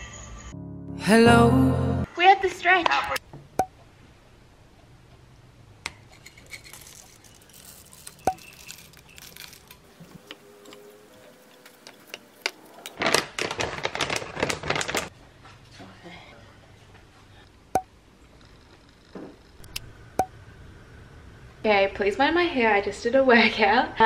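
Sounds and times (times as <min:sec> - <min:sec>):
granola rustling into bowl: 0:06.4 - 0:10.2.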